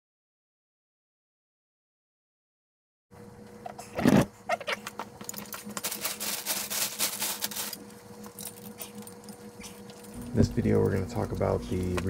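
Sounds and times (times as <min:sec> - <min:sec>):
faint steady hum: 0:03.1 - 0:12.0.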